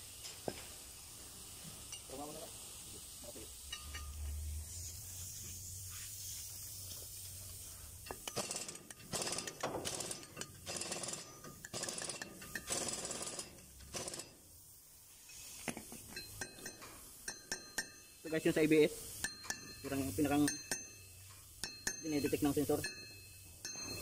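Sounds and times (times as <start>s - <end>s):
steady low hum: 3.2s - 9.0s
small hammer tapping metal: 8.0s - 14.2s, 16.1s - 18.2s, 19.2s - 24.0s.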